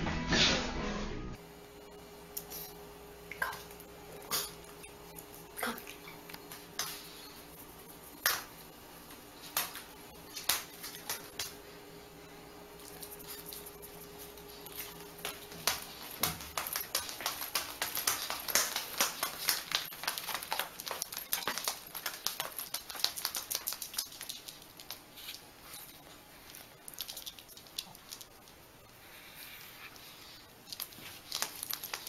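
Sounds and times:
dog booties tapping on wooden floor: 0:14.8 - 0:24.3.

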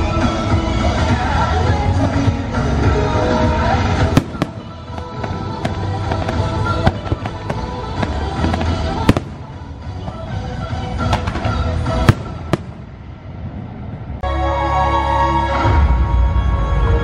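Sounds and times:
music: 0:00.0 - 0:17.0
fireworks bangs and cracks: 0:00.4 - 0:13.8.

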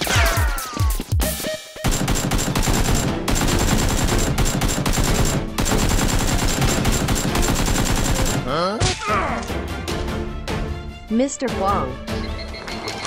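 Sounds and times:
automatic gunfire: 0:01.8 - 0:08.4.

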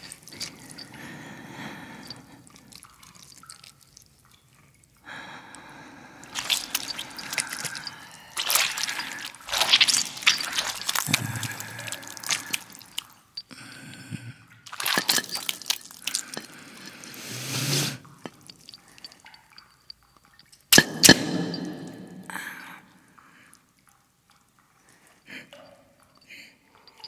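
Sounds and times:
hands squelching wet mash: 0:00.0 - 0:01.0, 0:02.0 - 0:04.1, 0:06.2 - 0:13.2, 0:14.7 - 0:17.3.

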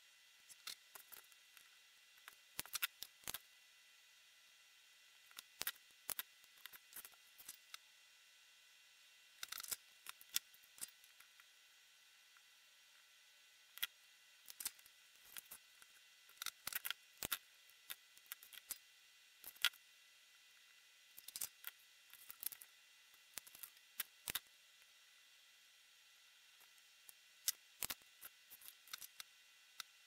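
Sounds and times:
faint steady hiss: 0:00.0 - 0:30.0
hand tools and wires clicking: 0:00.5 - 0:03.4, 0:05.3 - 0:07.8, 0:09.4 - 0:11.4, 0:14.5 - 0:18.8, 0:21.2 - 0:24.5, 0:26.6 - 0:29.9.

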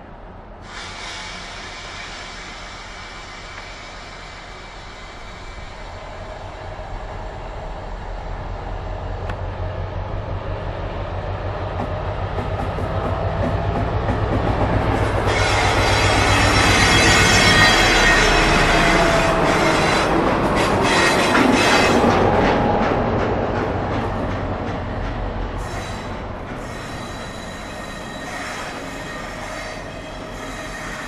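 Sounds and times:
locomotive engine droning: 0:00.0 - 0:31.0
high-pitched wheel squeal: 0:25.6 - 0:31.0.

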